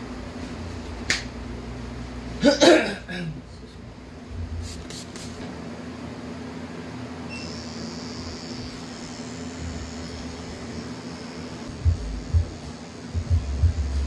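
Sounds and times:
low mechanical hum: 0.0 - 14.0
faint high whine: 6.9 - 14.0.

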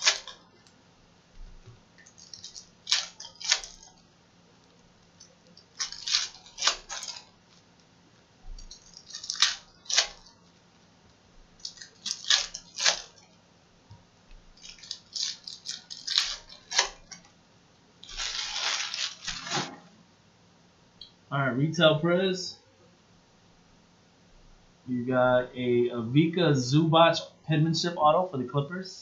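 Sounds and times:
foil wrappers tearing and crinkling: 0.0 - 0.4, 2.0 - 4.8, 5.5 - 7.8, 8.6 - 10.5, 11.6 - 13.3, 14.5 - 17.3, 18.0 - 19.8.

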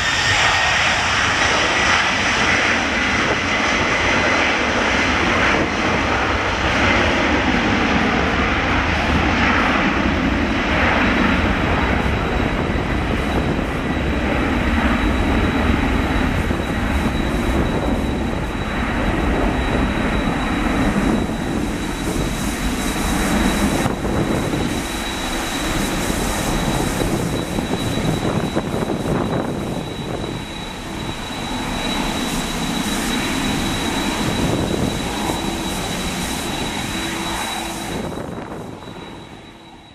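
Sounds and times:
jet engine roar: 0.0 - 39.9
high jet whistle: 19.4 - 39.9.

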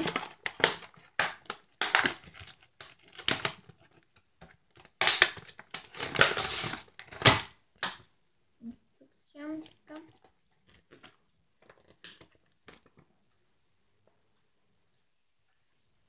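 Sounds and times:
plastic bag crinkling: 0.0 - 4.1, 4.7 - 7.5.

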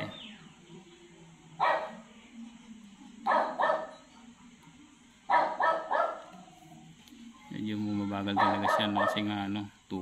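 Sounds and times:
dog barking: 1.6 - 2.0, 3.3 - 4.0, 5.3 - 6.3, 8.3 - 9.4.

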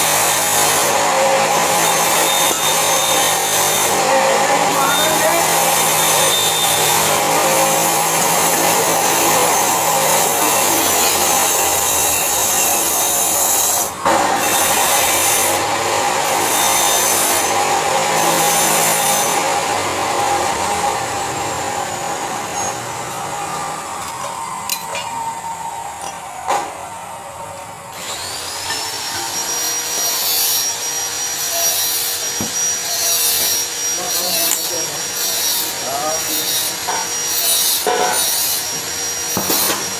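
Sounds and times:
gas welding torch hissing: 0.0 - 4.1
thin high whistle: 2.1 - 3.4, 6.1 - 7.2.

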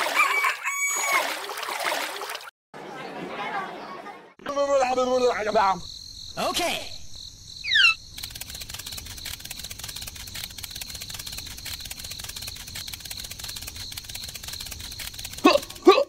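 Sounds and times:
rapid even clicking: 8.1 - 16.0.

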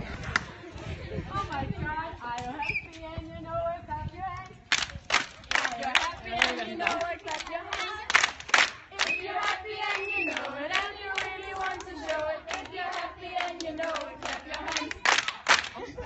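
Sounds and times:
hand claps: 4.7 - 10.5, 13.4 - 15.8
children singing and chanting: 5.6 - 15.9.

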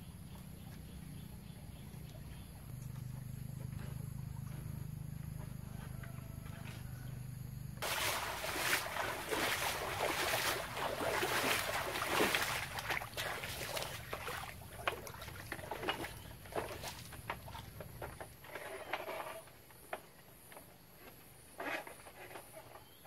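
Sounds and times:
low steady hum: 0.0 - 18.3
water splashing on bamboo deck: 7.8 - 18.5
bare footsteps on bamboo slats: 7.8 - 19.3.

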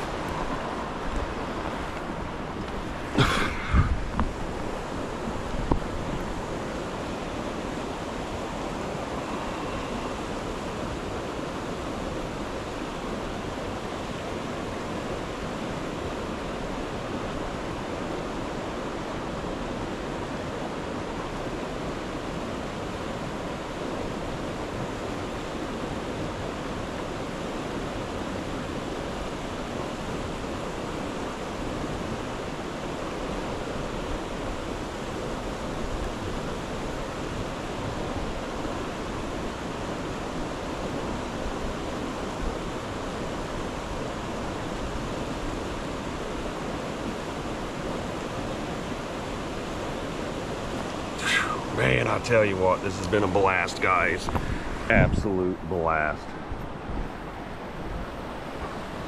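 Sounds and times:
creek rapids rushing: 0.0 - 59.0.

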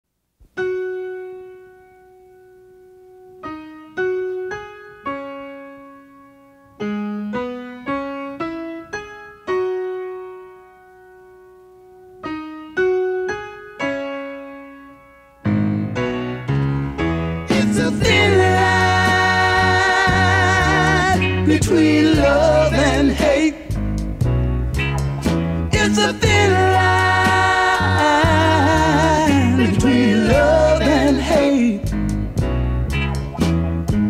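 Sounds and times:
slow solo piano: 0.4 - 21.7.

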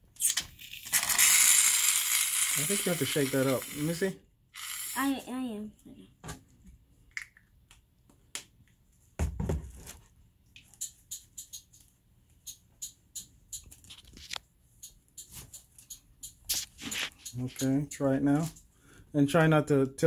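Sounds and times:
aerosol can being shaken: 0.2 - 3.9.

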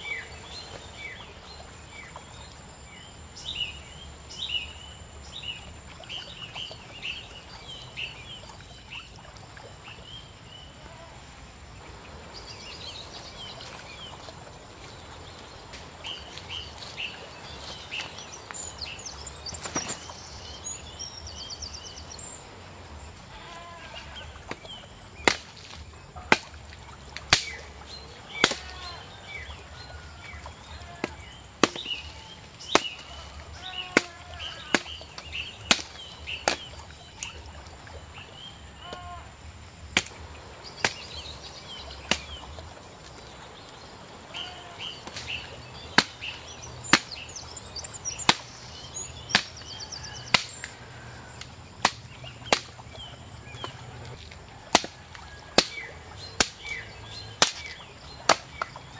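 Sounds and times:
birds chirping: 0.0 - 58.9
blade chopping wooden pole: 31.0 - 32.0, 32.7 - 33.0, 33.8 - 36.7, 46.0 - 46.3, 46.9 - 47.2, 51.8 - 52.8, 54.7 - 55.0, 55.6 - 56.8, 57.4 - 58.8.

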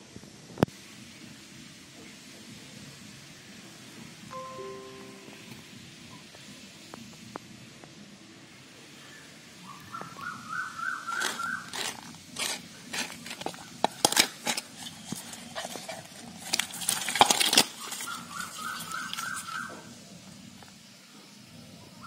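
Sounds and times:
bird calling: 9.0 - 11.8, 17.8 - 19.9
fish splashing in metal bowl: 16.3 - 19.7.

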